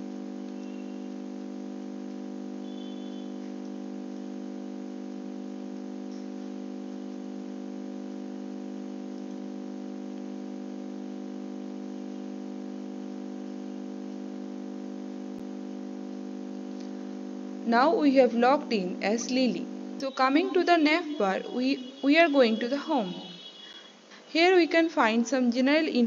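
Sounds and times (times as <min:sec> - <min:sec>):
steady multi-tone hum: 0:00.0 - 0:26.0
faint click: 0:00.4 - 0:00.8, 0:09.1 - 0:09.4.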